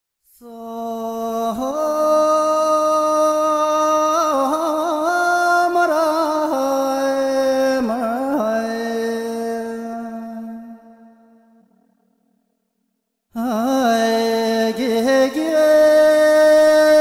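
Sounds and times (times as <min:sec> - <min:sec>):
person singing unaccompanied: 0:13.4 - 0:17.0.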